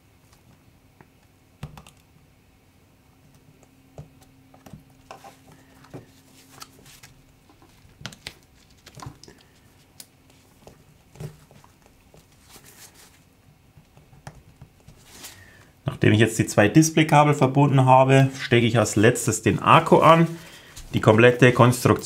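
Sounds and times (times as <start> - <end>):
glove rustle: 5.0 - 13.6, 14.8 - 15.7, 18.2 - 22.0.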